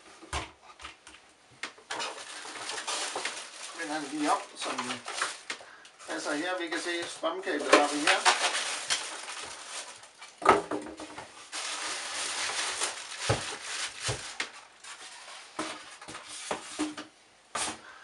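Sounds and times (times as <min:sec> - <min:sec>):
plastic bag rustling: 0:01.8 - 0:17.0
foam packing pulled apart: 0:02.0 - 0:10.2.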